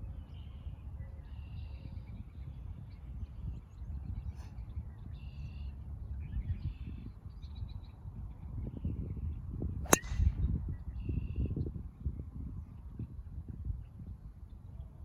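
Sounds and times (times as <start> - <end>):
low outdoor rumble: 0.0 - 11.1.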